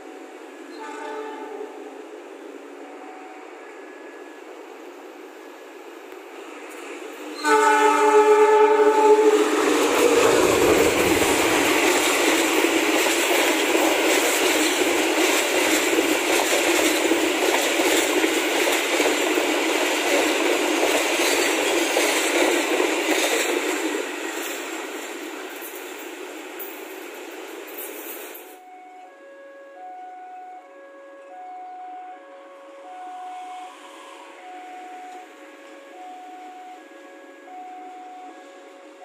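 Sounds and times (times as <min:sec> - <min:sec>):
train rumbling past: 0:00.0 - 0:39.0
locomotive horn blast: 0:00.7 - 0:02.0, 0:07.4 - 0:11.8, 0:28.6 - 0:39.0.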